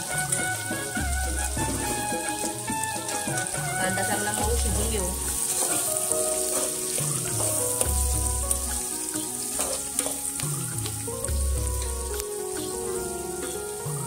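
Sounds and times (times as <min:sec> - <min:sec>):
background music: 0:00.0 - 0:14.0
onions sizzling in hot oil: 0:00.0 - 0:14.0
ladle clinking and scraping pot: 0:05.3 - 0:08.0, 0:09.1 - 0:10.4.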